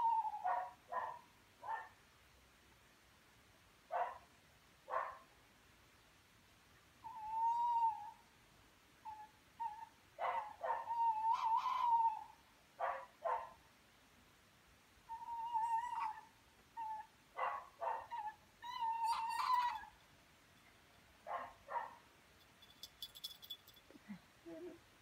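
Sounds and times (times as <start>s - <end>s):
wavering whining animal call: 10.9s - 12.3s, 15.1s - 17.1s, 18.2s - 19.9s.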